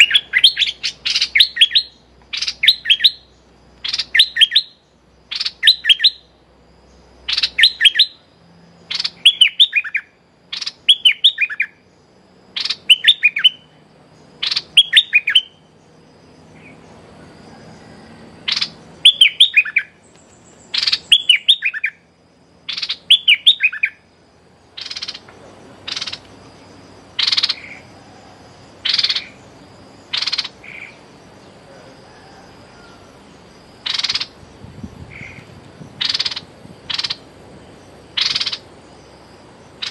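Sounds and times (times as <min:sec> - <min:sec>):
bird whistled calls: 0:00.0 - 0:06.3, 0:07.2 - 0:11.9, 0:12.5 - 0:13.8, 0:14.4 - 0:15.7, 0:16.6 - 0:20.0, 0:20.7 - 0:24.1, 0:24.8 - 0:26.3, 0:27.2 - 0:31.0, 0:33.8 - 0:37.2, 0:38.1 - 0:38.7
sharp bird call notes: 0:17.8 - 0:20.0, 0:24.8 - 0:26.3, 0:30.1 - 0:31.0, 0:36.0 - 0:37.3, 0:38.1 - 0:38.7.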